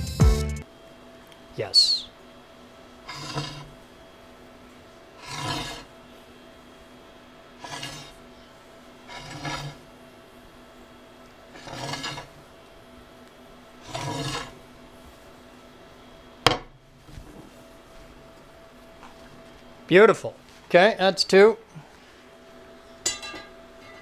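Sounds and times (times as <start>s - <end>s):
hand file rasping on brass: 3.1s - 3.7s, 5.2s - 5.9s, 7.6s - 8.1s, 9.1s - 9.8s, 11.6s - 12.3s, 13.8s - 14.5s.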